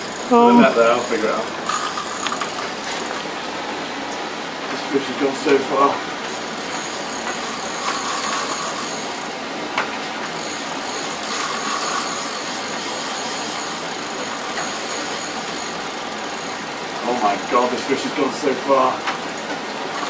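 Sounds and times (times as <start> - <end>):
fishing reel drag buzzing: 0.0 - 3.3, 6.2 - 9.4, 10.2 - 18.0, 18.8 - 20.0.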